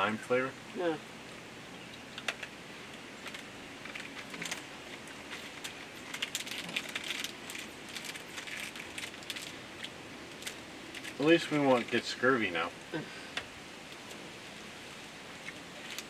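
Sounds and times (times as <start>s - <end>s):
faint steady hiss: 0.0s - 16.0s
plastic wrapper crinkling: 3.2s - 12.0s, 15.4s - 16.0s.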